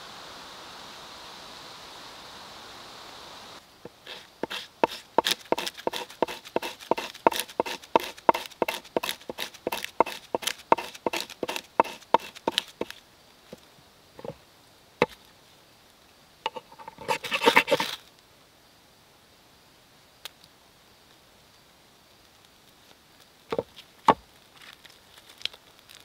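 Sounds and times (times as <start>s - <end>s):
knife scraping bark: 3.9s - 13.0s, 16.5s - 18.1s.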